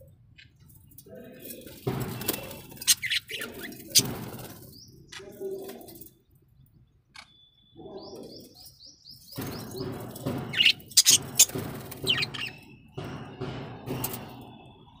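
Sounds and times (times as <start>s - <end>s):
budgerigars chirping and warbling: 1.2s - 5.8s, 7.2s - 13.0s.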